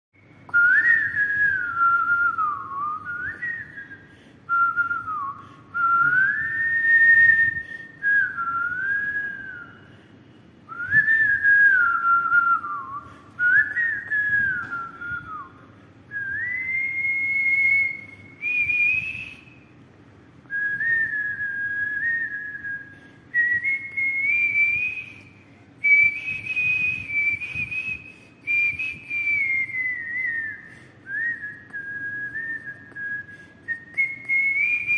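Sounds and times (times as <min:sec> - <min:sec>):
man whistling a tune: 0:00.2 - 0:10.0, 0:10.7 - 0:19.7, 0:20.5 - 0:34.9
breaths: 0:03.9 - 0:04.5, 0:05.3 - 0:05.8, 0:07.5 - 0:08.0, 0:09.7 - 0:10.7, 0:13.0 - 0:13.4, 0:15.6 - 0:16.1, 0:22.8 - 0:23.3, 0:28.0 - 0:28.5, 0:30.6 - 0:31.1, 0:33.2 - 0:33.7.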